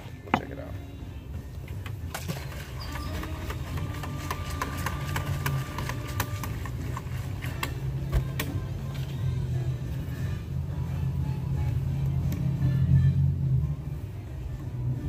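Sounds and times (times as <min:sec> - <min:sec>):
metal can being shaken: 0:02.1 - 0:07.7.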